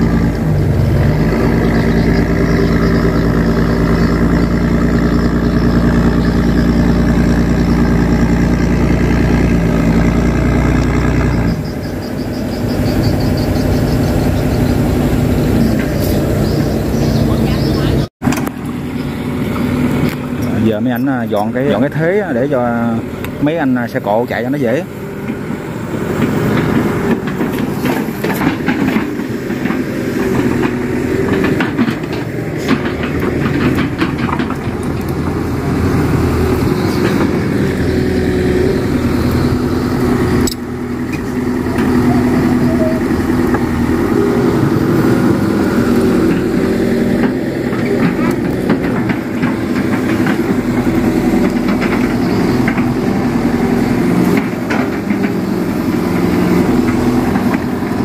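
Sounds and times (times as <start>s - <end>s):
heavy diesel engines under load: 0.0s - 58.0s
knocks and clanks: 26.2s - 38.2s, 45.9s - 58.0s.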